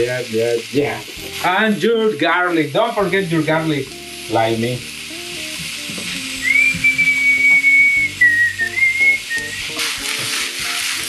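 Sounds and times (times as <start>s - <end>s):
background music: 0.0s - 11.0s
vegetables sizzling in oil: 0.0s - 11.0s
person whistling a tune: 6.3s - 9.8s.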